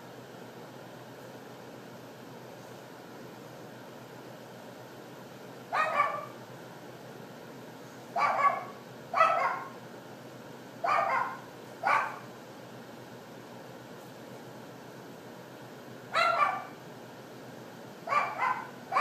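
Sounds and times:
dog barking: 5.7s - 6.4s, 8.2s - 9.8s, 10.8s - 12.3s, 16.1s - 16.8s, 18.1s - 19.0s.

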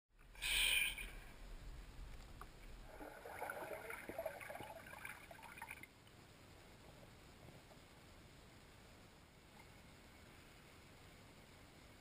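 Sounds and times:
underwater bubbling and crackling: 1.7s - 6.1s
water rushing: 2.6s - 5.9s.

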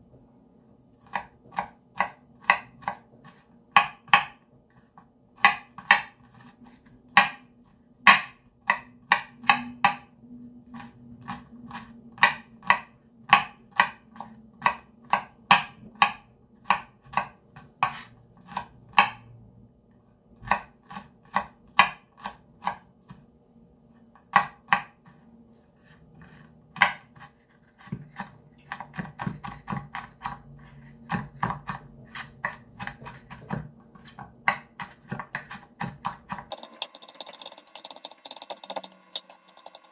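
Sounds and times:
knife chopping on cutting board: 1.0s - 4.4s, 5.4s - 6.2s, 7.1s - 7.4s, 8.1s - 10.0s, 11.2s - 19.2s, 20.4s - 23.2s, 26.3s - 30.4s, 31.0s - 39.9s.

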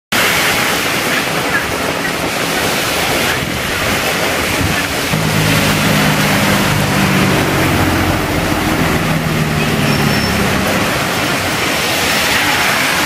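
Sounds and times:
heavy rain on road: 0.2s - 13.0s
vehicle passing on wet road: 5.1s - 13.0s.

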